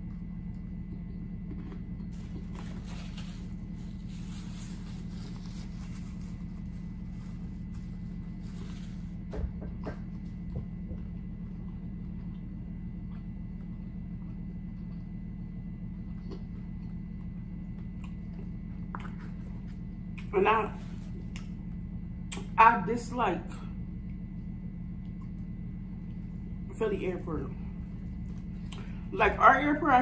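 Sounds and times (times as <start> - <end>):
person chewing crunchy food: 0.0 - 20.3
steady low hum: 0.0 - 30.0.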